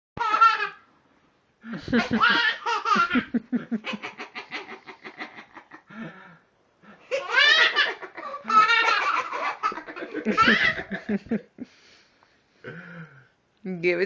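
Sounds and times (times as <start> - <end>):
adult laughing: 1.7 - 6.2, 7.1 - 11.6.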